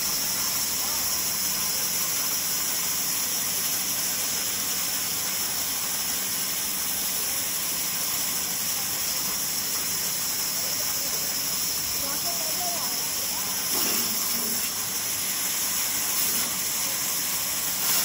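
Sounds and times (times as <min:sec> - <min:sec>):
band saw running: 0:09.2 - 0:18.0.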